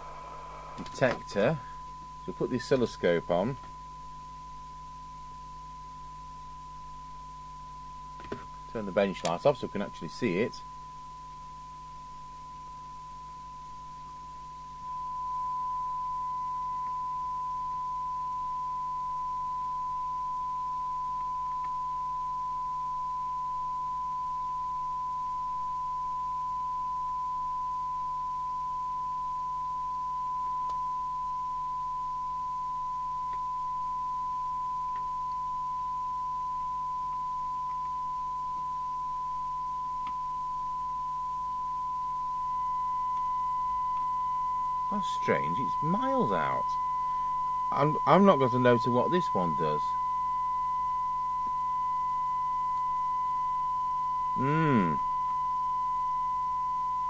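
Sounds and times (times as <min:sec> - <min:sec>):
steady test tone from radio speaker: 0:00.0 - 0:57.0.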